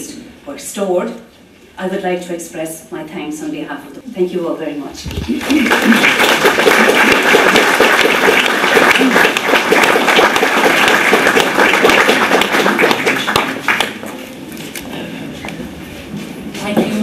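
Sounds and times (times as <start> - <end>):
audience applauding: 5.2 - 14.2.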